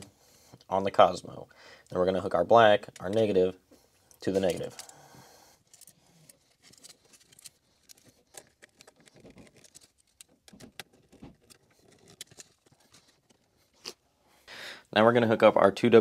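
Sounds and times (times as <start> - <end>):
screwdriver clicks and scrapes: 5.7 - 13.5.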